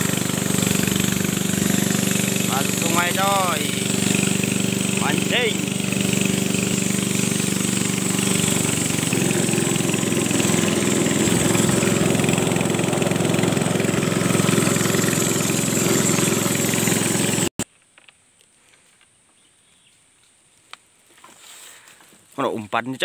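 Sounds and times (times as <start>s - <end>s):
small boat engine running: 0.0s - 17.6s.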